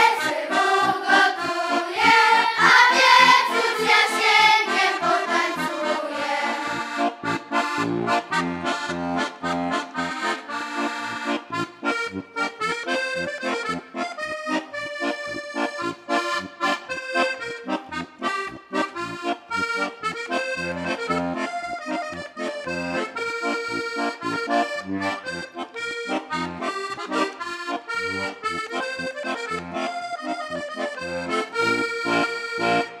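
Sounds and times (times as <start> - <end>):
instrumental folk music: 0.0 - 33.0.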